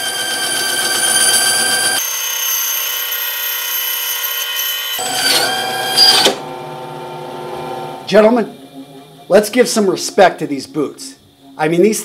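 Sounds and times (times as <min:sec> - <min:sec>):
band saw cutting boot sole: 0:05.0 - 0:06.6.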